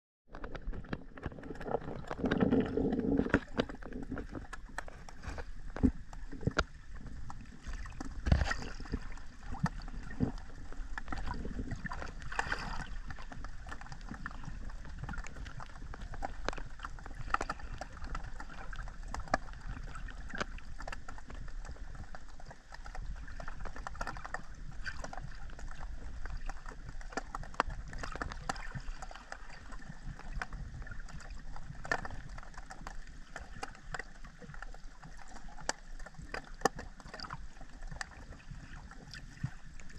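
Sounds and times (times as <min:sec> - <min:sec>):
underwater clicks and crackles: 0:00.3 - 0:39.9
underwater rumble of moving water: 0:00.3 - 0:39.9
sharp underwater knocks: 0:07.9 - 0:09.0.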